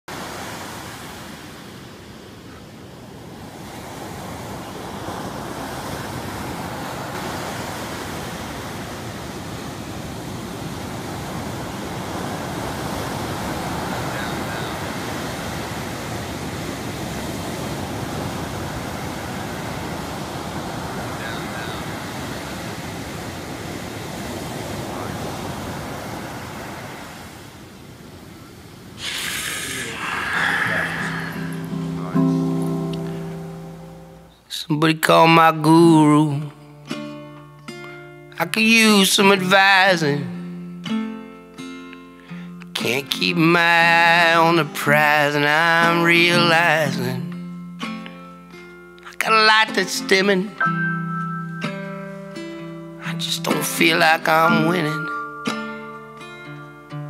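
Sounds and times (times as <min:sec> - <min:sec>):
ocean surf washing onto beach: 0:00.1 - 0:34.6, 0:42.0 - 0:47.4, 0:49.1 - 0:56.2.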